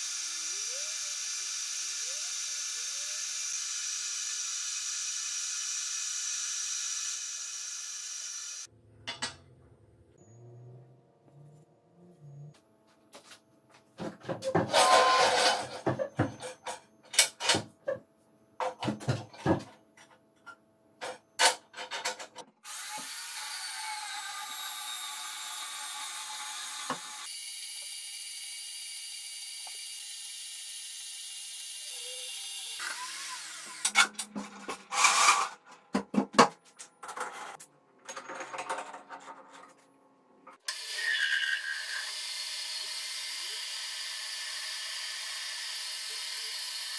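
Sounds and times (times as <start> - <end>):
clanks of steel parts: 14.4 - 17.7
band saw cutting steel rod: 14.7 - 15.7, 29.5 - 35.6, 40.7 - 46.9.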